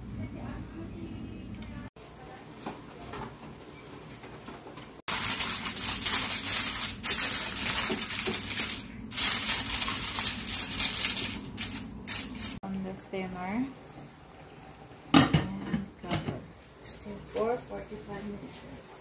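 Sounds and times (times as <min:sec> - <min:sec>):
aluminium foil crinkling: 0:05.1 - 0:12.6.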